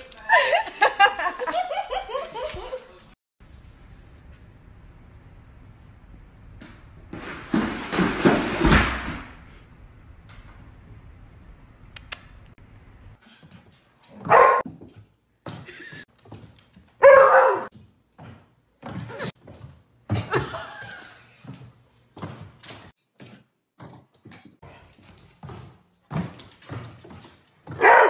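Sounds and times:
dog barking: 0:14.2 - 0:14.6, 0:17.0 - 0:17.7, 0:27.7 - 0:28.0.

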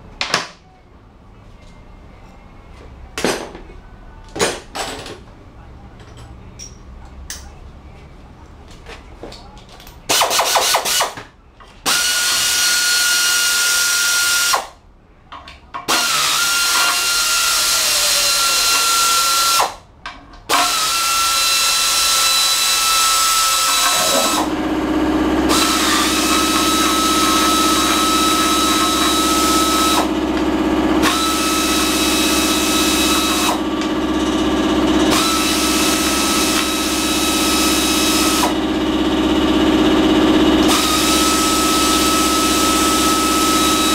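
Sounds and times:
power tool whining: 0:11.9 - 0:14.7, 0:15.9 - 0:19.8, 0:20.5 - 0:43.9.

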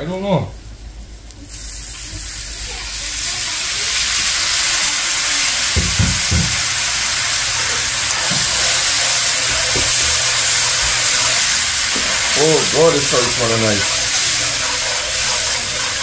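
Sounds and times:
oil sizzling in a metal pan: 0:01.5 - 0:16.0
metal spoon stirring: 0:07.5 - 0:16.0.

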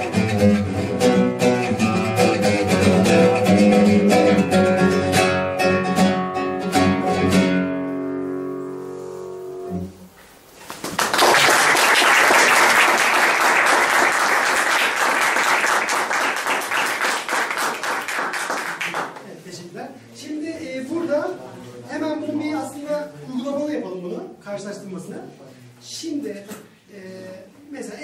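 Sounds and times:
classical guitar chord ringing: 0:00.0 - 0:10.0
audience applause: 0:10.7 - 0:19.2.

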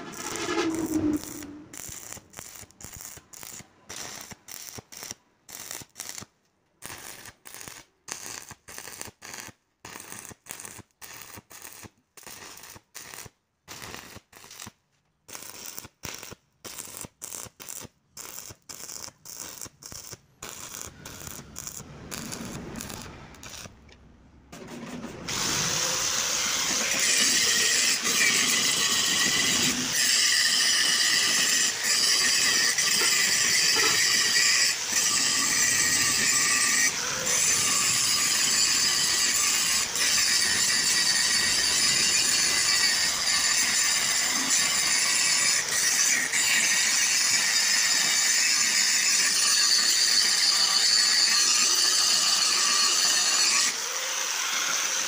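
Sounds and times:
arc welding crackling: 0:00.1 - 0:23.9.

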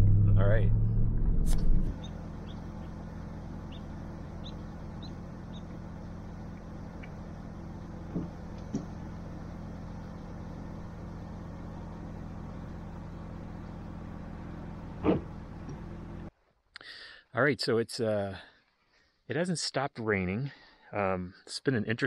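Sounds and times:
car engine idling: 0:00.0 - 0:16.3.

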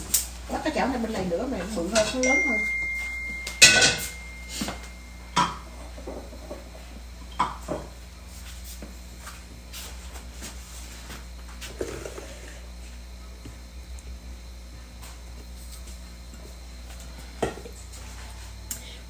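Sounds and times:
low steady hum: 0:00.0 - 0:19.0
metal pans clattering on grates: 0:03.6 - 0:04.2.

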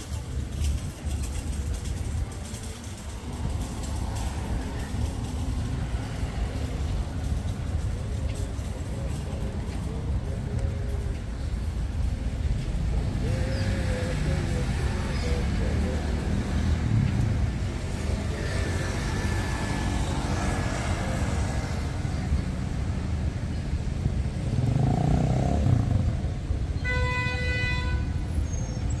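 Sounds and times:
vehicles passing: 0:00.0 - 0:29.0
car horn: 0:26.8 - 0:28.2.

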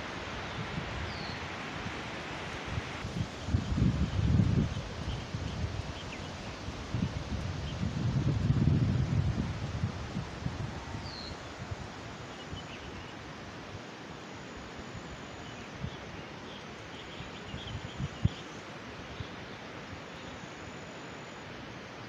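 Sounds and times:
wind in trees: 0:00.0 - 0:22.0.

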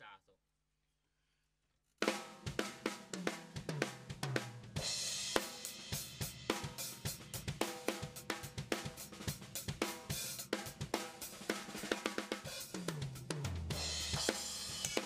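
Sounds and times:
hi-hat hits: 0:04.8 - 0:15.0
snare drum hits: 0:14.0 - 0:15.0.

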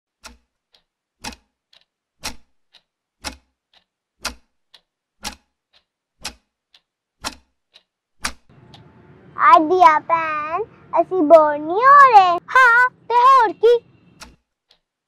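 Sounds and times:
clock ticking: 0:00.1 - 0:10.4, 0:11.0 - 0:15.0.

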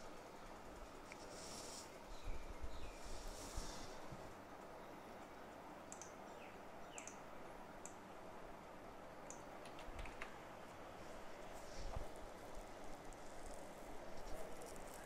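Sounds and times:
low steady hiss: 0:00.0 - 0:15.0
computer mouse and keyboard clicks: 0:05.9 - 0:06.2, 0:07.0 - 0:07.2, 0:09.3 - 0:10.4.

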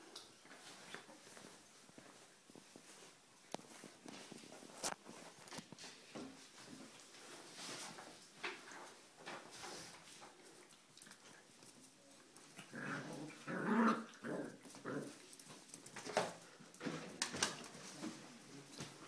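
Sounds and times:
puppy growling in play: 0:12.4 - 0:15.3.

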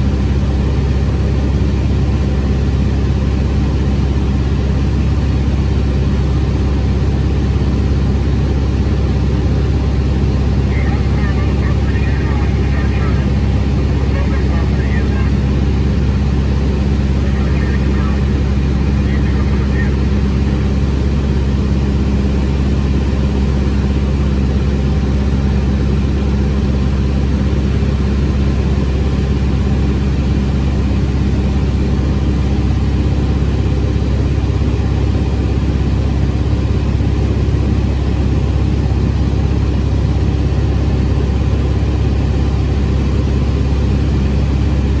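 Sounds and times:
propeller engine drone: 0:00.0 - 0:45.0.

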